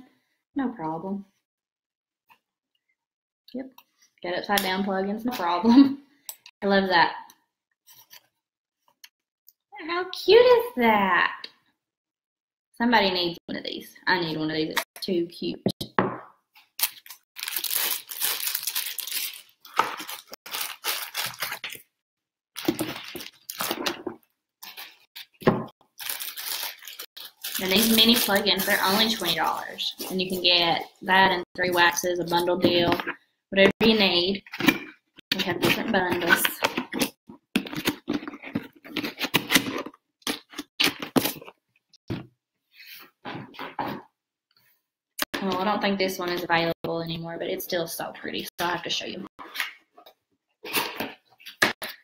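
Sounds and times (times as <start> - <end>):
packing material crinkling: 16.8 - 21.9, 22.6 - 30.4.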